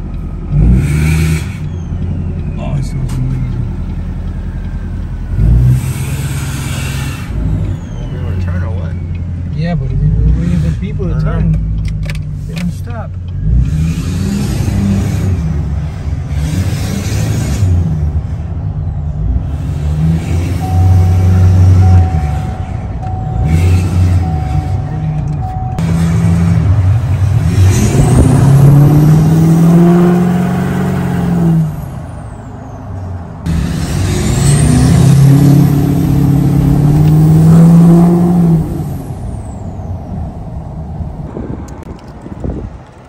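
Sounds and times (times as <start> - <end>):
diesel engine accelerating: 12.7 - 43.0.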